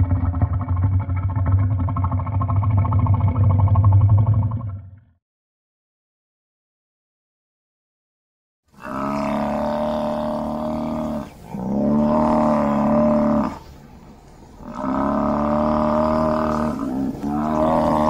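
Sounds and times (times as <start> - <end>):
buffalo calling: 8.8 - 13.7, 14.6 - 18.0.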